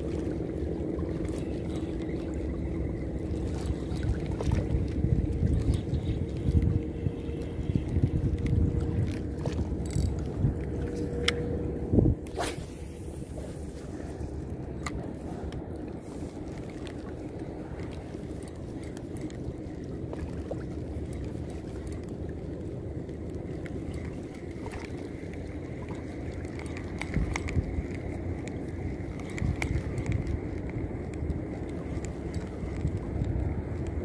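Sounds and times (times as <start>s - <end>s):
faint steady whine: 0.0s - 34.0s
wind rumble: 0.0s - 34.0s
fishing reel clicks and knocks: 9.8s - 10.2s.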